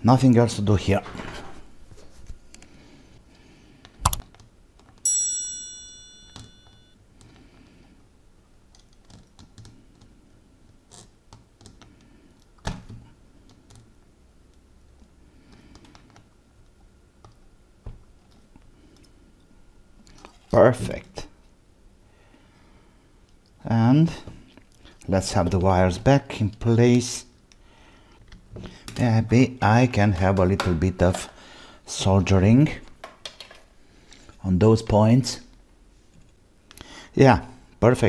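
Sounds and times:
short metallic ring: 5.1s - 6.9s.

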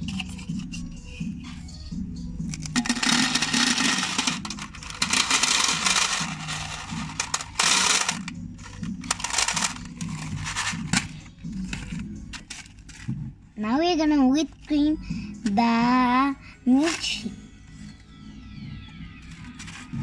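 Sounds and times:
faint background music: 0.0s - 20.0s
small hard pieces rattling into bowl: 2.5s - 11.1s.

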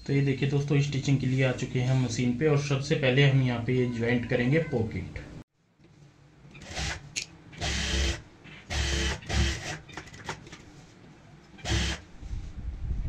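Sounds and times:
sewing machine stitching: 7.6s - 10.4s, 11.6s - 12.0s.

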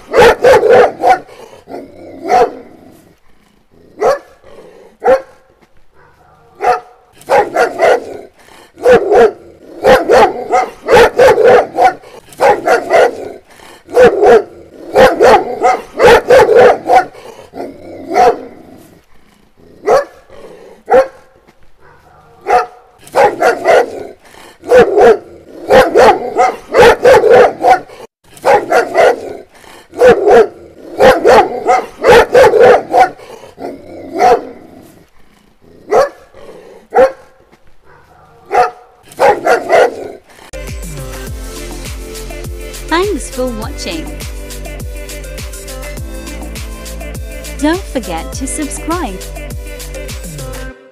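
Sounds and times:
dog barking: 0.0s - 2.9s, 4.0s - 18.7s, 19.8s - 20.3s, 20.9s - 34.8s, 35.9s - 40.2s.

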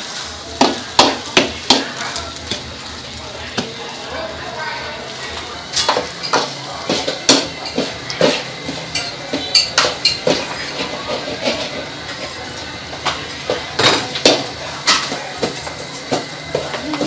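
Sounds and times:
frying sizzle: 0.0s - 17.0s
metal utensil scraping a pan: 5.8s - 12.0s.

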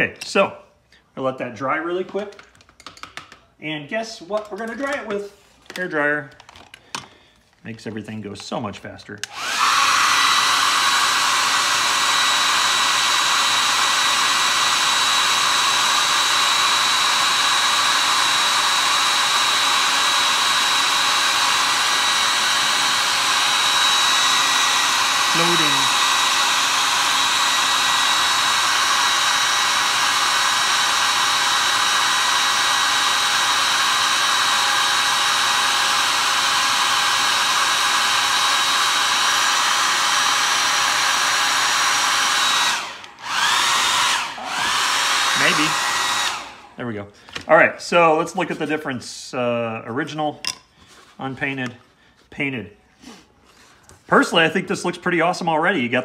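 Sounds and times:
hair dryer running: 9.2s - 46.8s.

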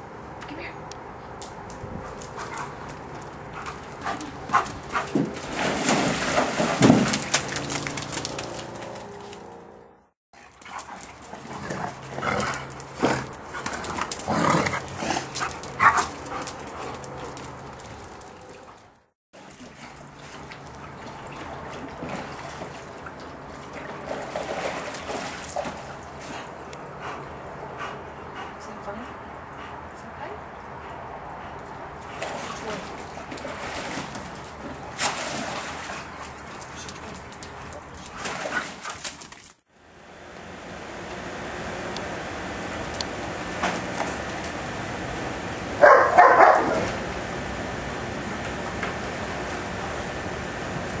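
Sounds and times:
dog splashing in water: 2.3s - 9.5s, 10.4s - 26.5s, 32.0s - 39.6s.

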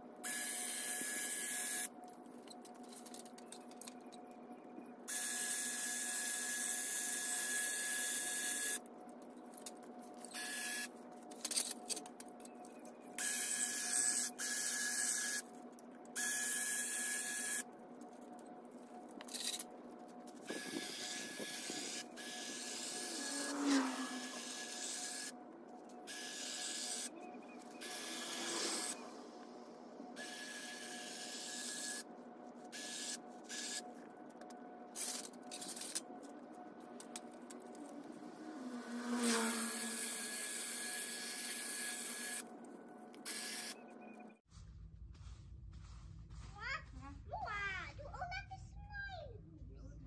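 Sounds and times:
electric hedge trimmer running: 20.5s - 25.3s, 27.8s - 29.4s, 30.2s - 32.0s, 37.9s - 42.4s.

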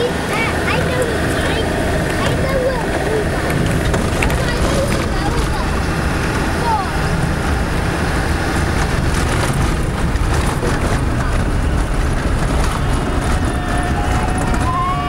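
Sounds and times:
rattles and knocks from vehicle body: 0.0s - 14.8s
vehicle engine: 0.0s - 15.0s.

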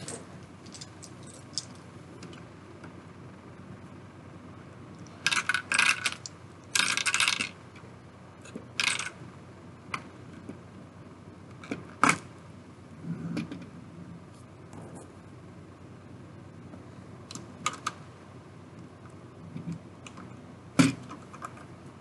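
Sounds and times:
plastic toy bricks rattling: 5.2s - 7.6s, 8.8s - 9.1s.

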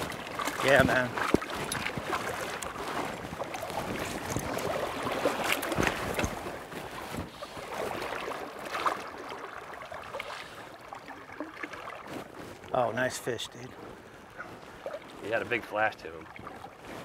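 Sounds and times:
river water rushing: 0.0s - 6.6s
sharp splashes and knocks: 0.0s - 12.8s.

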